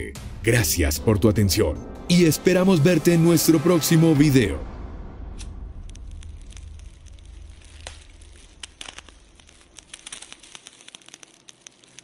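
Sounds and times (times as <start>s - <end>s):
low rumble: 0.0s - 10.1s
fire crackling and popping: 5.2s - 12.0s.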